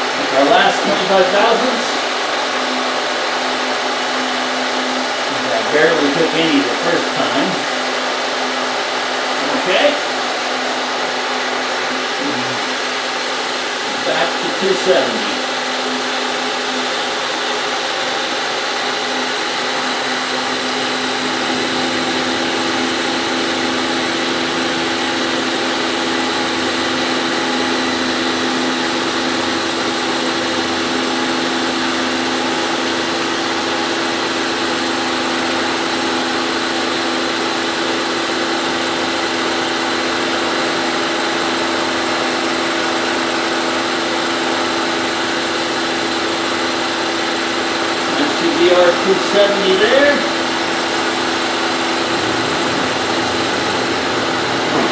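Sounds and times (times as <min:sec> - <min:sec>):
milling machine cutting metal: 0:00.0 - 0:54.9.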